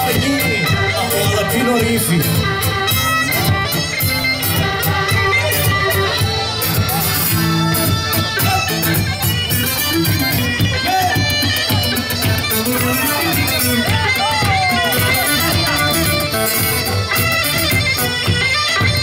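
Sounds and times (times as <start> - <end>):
plucked strings: 0.0 - 19.0
steady beat: 0.0 - 19.0
sustained lead melody: 0.0 - 19.0.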